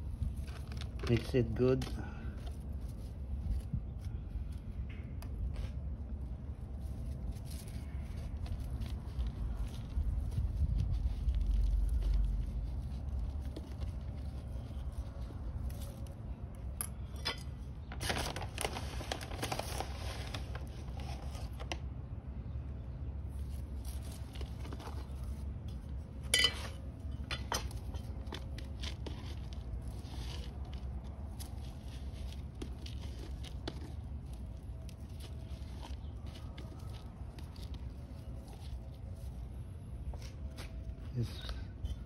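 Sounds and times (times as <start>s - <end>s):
soil scraping and crunching: 0.0s - 21.8s, 23.1s - 42.0s
plastic crinkling: 0.1s - 4.7s, 17.8s - 21.8s, 26.8s - 41.0s.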